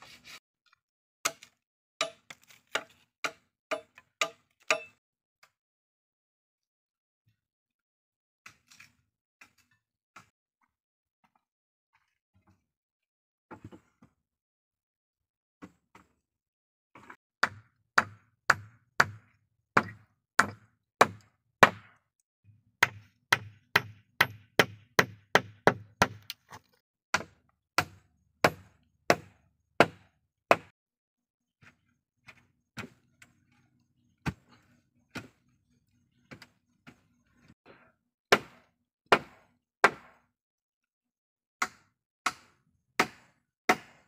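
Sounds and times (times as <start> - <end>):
hatchet chopping into soil: 19.8 - 22.0, 38.3 - 40.2, 41.6 - 44.0.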